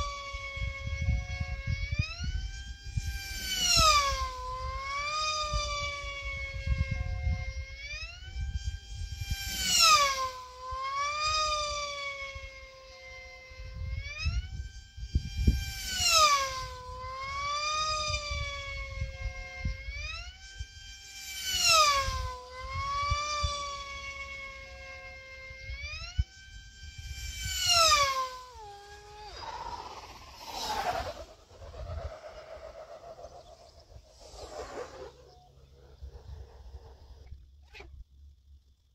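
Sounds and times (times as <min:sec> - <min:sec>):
wind rumbling on microphone: 0:00.0 - 0:12.6, 0:13.4 - 0:20.8, 0:21.4 - 0:38.9
model aircraft motor whining: 0:00.0 - 0:38.9
rush of air: 0:29.2 - 0:37.3.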